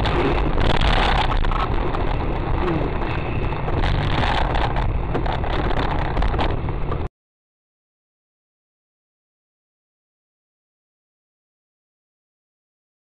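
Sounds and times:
vehicle rumble with crackling: 0.0 - 7.1.

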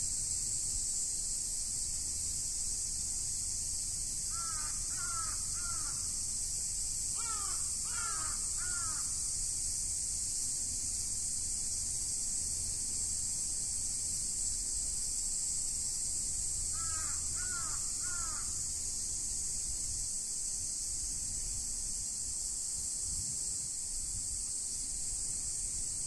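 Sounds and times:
steady high-pitched hiss: 0.0 - 26.0
crow cawing: 4.3 - 6.0, 7.2 - 9.1, 16.8 - 18.6.

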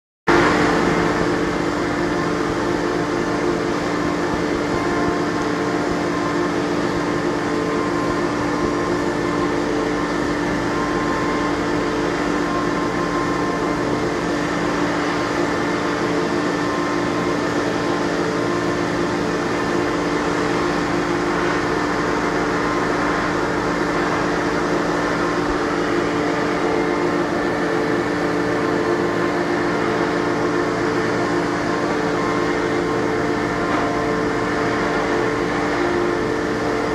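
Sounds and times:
milling machine humming: 0.3 - 36.9.

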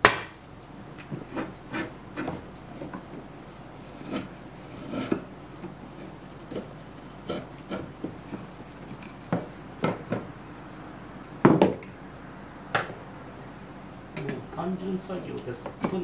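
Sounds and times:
chisel scraping wood: 1.0 - 3.1, 3.8 - 9.3.

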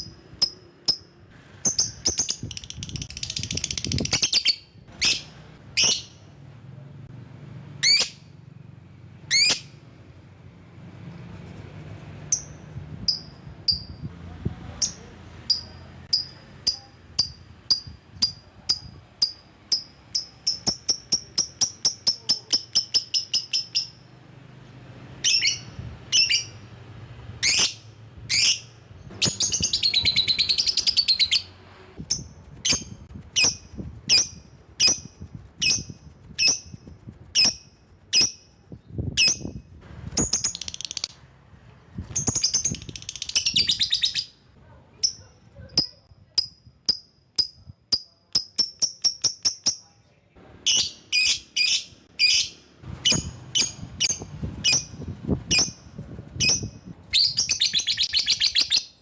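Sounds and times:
lovebird chirping shrilly: 0.0 - 6.3, 7.8 - 8.3, 9.3 - 9.8, 14.8 - 24.1, 25.2 - 26.7, 27.4 - 41.2, 42.0 - 44.5, 50.6 - 59.0
lovebird chattering trills: 0.4 - 6.2, 14.8 - 24.0, 27.4 - 36.8, 40.2 - 41.2, 42.2 - 44.4, 50.7 - 59.0.

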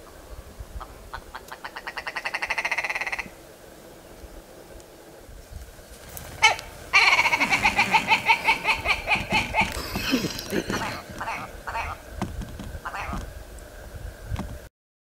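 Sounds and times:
bird cackling: 0.8 - 3.4, 6.3 - 12.1, 12.8 - 13.3
bird rattling call: 1.3 - 3.3, 6.1 - 12.0, 12.8 - 13.3.

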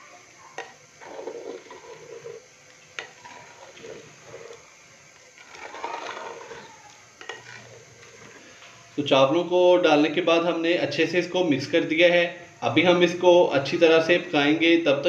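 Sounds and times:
spoon stirring rice in water: 0.5 - 8.6.

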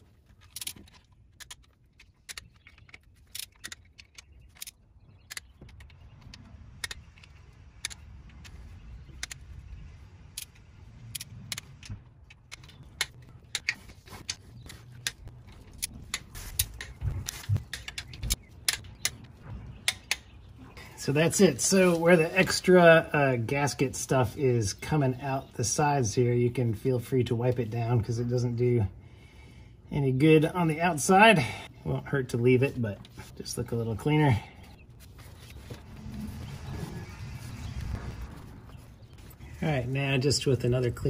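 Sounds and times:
faint low rumble: 34.4 - 41.0.

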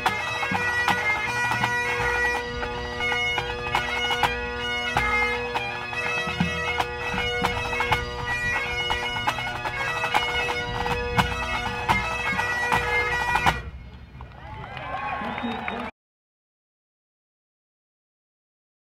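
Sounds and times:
bagpipe drone and melody: 0.0 - 13.9
pipe band playing: 0.0 - 15.9.

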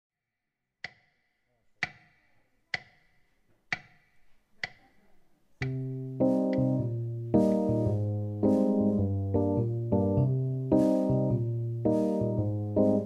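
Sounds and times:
piano chord ringing: 5.7 - 13.0.

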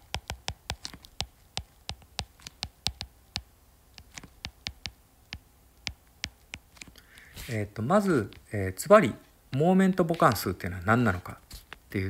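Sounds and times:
stylus tapping on glass screen: 0.0 - 7.3.

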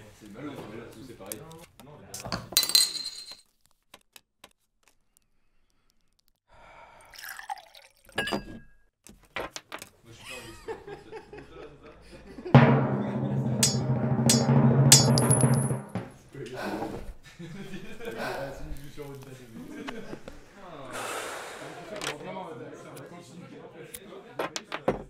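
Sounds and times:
liquid trickle: 7.0 - 8.2.

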